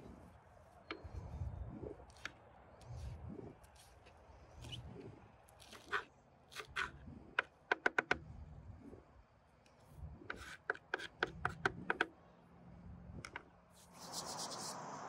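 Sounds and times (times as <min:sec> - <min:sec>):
steady hiss: 0:13.8 - 0:15.0.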